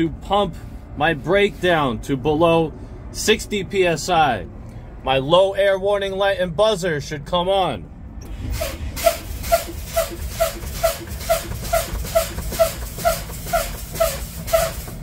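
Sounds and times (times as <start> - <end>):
air brakes hissing puffs: 8.2 - 15.0.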